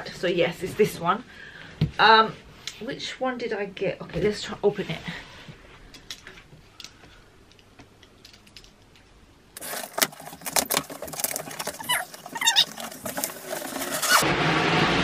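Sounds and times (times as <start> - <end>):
packing tape being torn open: 9.6 - 14.2.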